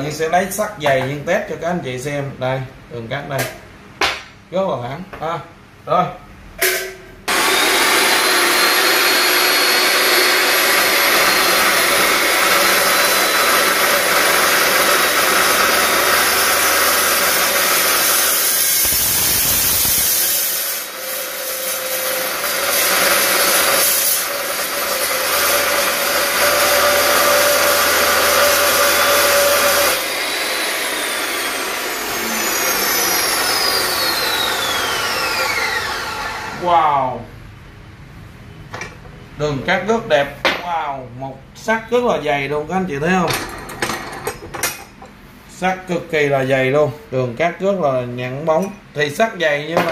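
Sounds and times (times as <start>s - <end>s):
saw blade winding down whine: 7.3s - 36.6s
saw cutting through steel pipe: 7.3s - 36.6s.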